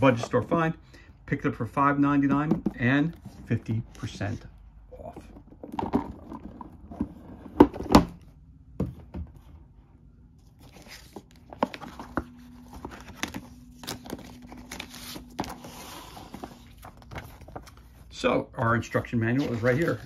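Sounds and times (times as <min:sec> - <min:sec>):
paper and cardboard rustling: 0:10.4 - 0:18.1, 0:18.7 - 0:20.0.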